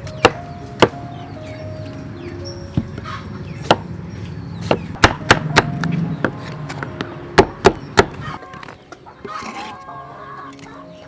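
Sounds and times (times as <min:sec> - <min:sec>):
knife chopping on wooden board: 0:04.6 - 0:06.4.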